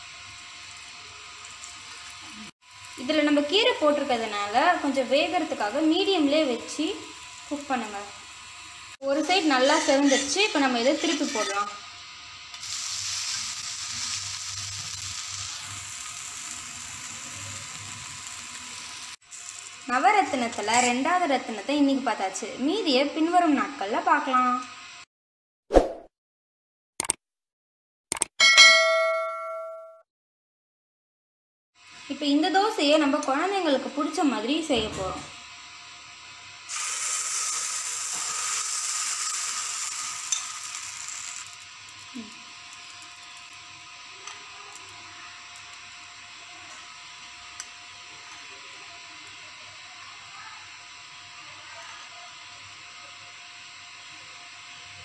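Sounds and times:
dosa sizzling on a hot pan: 0.0 - 22.0, 35.4 - 55.0.

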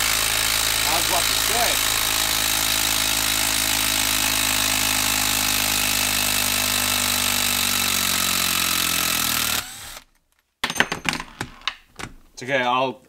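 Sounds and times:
impact driver hammering: 0.0 - 10.0.

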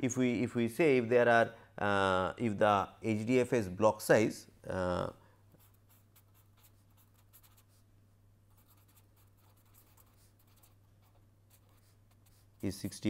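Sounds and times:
low electrical hum: 0.0 - 13.0
pen scratching on paper: 5.6 - 7.8, 8.5 - 12.9.

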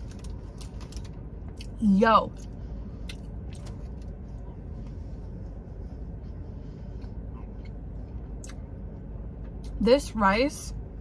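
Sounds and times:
eating clicks and scrapes: 0.0 - 1.2
car interior hum: 0.0 - 11.0.

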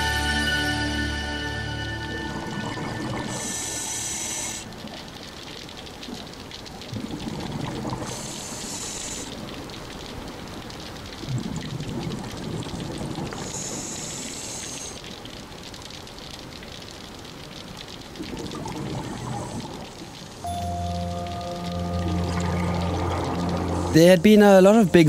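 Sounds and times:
bubbling exhaled air underwater: 2.2 - 5.0, 6.8 - 9.5, 11.2 - 15.0, 18.1 - 24.0
hissing inhale through regulator: 3.2 - 4.9, 8.0 - 9.5, 13.3 - 15.1.

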